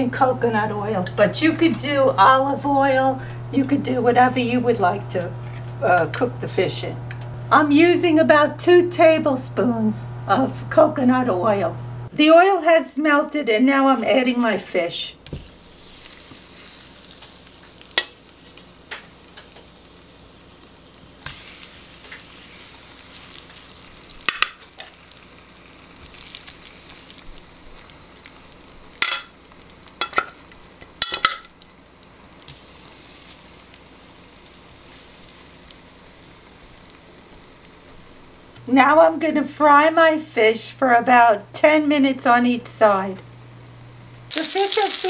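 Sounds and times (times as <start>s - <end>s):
fish sizzling in a frying pan: 15.3s - 38.5s, 44.3s - 45.0s.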